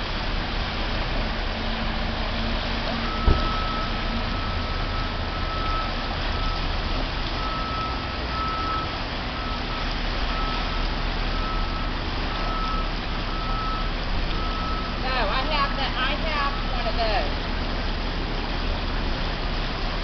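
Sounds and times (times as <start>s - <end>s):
floodwater rushing: 0.0s - 20.0s
backup alarm beeping: 3.0s - 6.6s, 7.4s - 17.0s.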